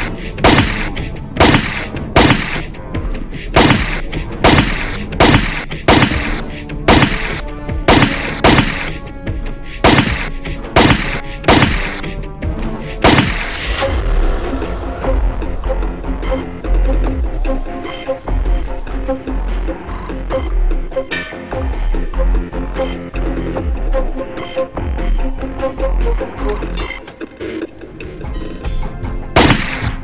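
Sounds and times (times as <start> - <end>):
pistol gunshots: 0.0 - 2.7, 3.6 - 9.0, 9.8 - 12.1, 13.0 - 13.6, 29.4 - 30.0
background music: 0.0 - 30.0.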